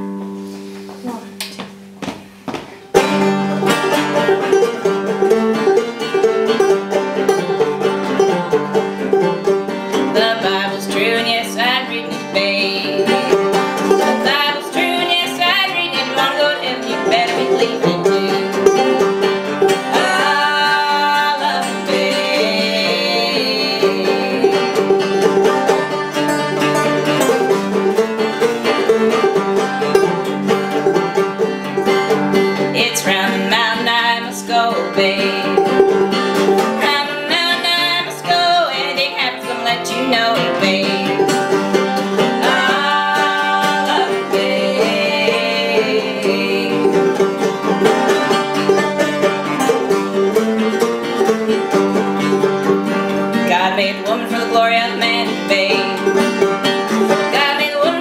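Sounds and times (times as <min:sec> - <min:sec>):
acoustic guitar: 0:00.0 - 0:58.0
banjo: 0:02.9 - 0:58.0
woman singing: 0:10.0 - 0:13.4, 0:14.0 - 0:19.0, 0:19.8 - 0:25.0, 0:32.7 - 0:35.8, 0:36.7 - 0:41.4, 0:42.2 - 0:47.3, 0:53.4 - 0:56.3, 0:57.2 - 0:58.0.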